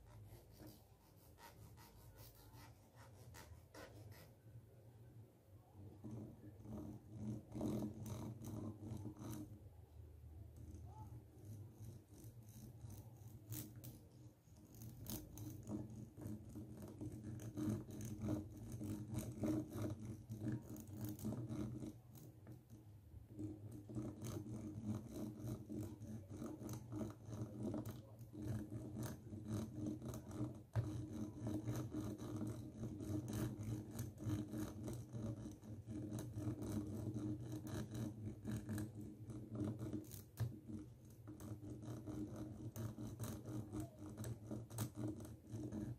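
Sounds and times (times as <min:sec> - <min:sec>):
comb scraping microphone grille: 0:00.0 - 0:04.4, 0:23.3 - 0:45.9.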